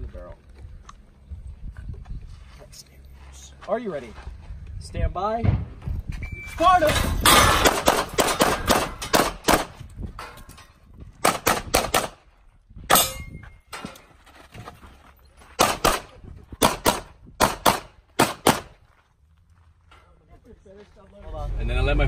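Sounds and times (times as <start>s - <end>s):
pistol gunshots: 7.2s - 9.8s, 11.2s - 12.2s, 15.6s - 18.8s.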